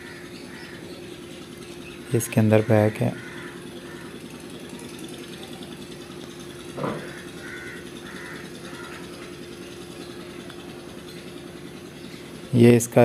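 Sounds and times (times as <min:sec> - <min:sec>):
crow-like caws: 0:00.0 - 0:00.9, 0:02.0 - 0:04.6, 0:06.5 - 0:09.4
low mechanical hum: 0:00.0 - 0:13.0.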